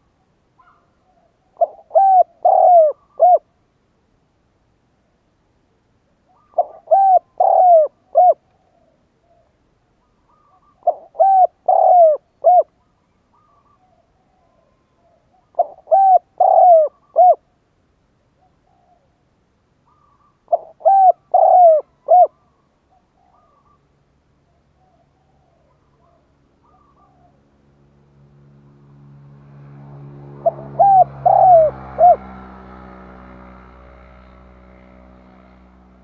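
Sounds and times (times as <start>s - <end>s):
dove cooing: 0.6s - 3.6s, 6.3s - 17.5s, 18.4s - 19.2s, 19.9s - 23.9s, 24.5s - 27.4s, 30.0s - 33.3s.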